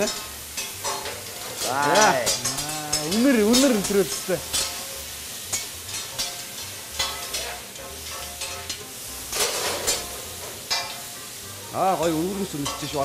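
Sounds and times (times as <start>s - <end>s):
metal spatulas scraping and tapping: 0.0s - 11.0s, 12.5s - 13.0s
food sizzling on a grill: 0.0s - 13.0s.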